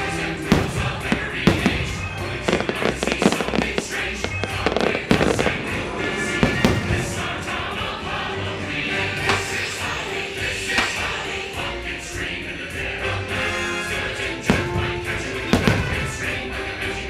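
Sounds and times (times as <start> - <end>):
loud show music: 0.0 - 17.0
fireworks bangs and pops: 0.4 - 5.8, 6.4 - 7.2, 10.7 - 11.2, 14.5 - 16.3.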